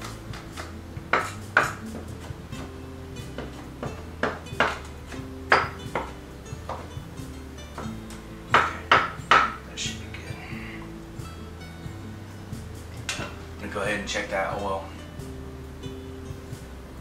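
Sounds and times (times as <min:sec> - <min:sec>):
cleaver chopping on wooden board: 0:00.0 - 0:06.9, 0:07.8 - 0:09.6
soft background music: 0:00.0 - 0:17.0.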